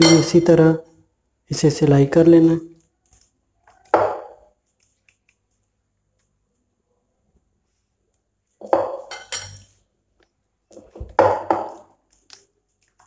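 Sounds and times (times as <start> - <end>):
dishes and utensils clattering: 0.0 - 0.5, 8.6 - 9.8.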